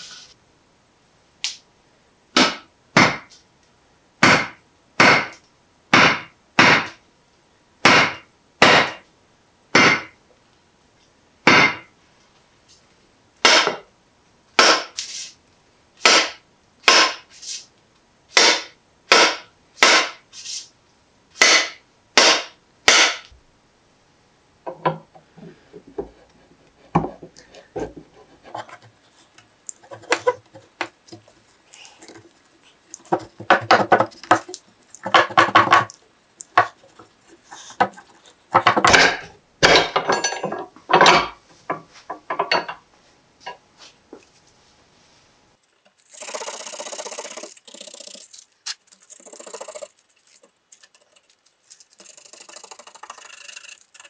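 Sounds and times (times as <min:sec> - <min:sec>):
sharp wooden knocks: 0:02.4 - 0:03.3, 0:04.2 - 0:07.0, 0:07.8 - 0:09.0, 0:09.7 - 0:10.2, 0:11.5 - 0:11.9, 0:13.4 - 0:13.8, 0:18.4 - 0:20.2, 0:21.4 - 0:23.2, 0:33.1 - 0:35.9.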